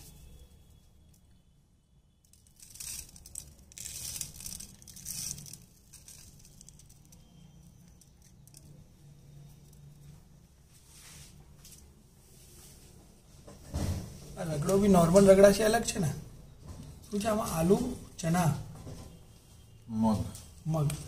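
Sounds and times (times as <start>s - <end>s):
crisp snack rustling and crinkling: 2.3s - 8.8s.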